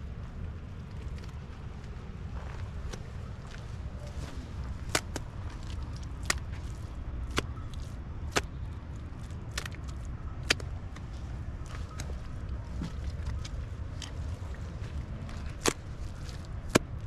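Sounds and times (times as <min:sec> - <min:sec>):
wind rumble on microphone: 0:00.0 - 0:17.0
wet mud slapping onto wall: 0:04.8 - 0:08.6, 0:15.4 - 0:17.0.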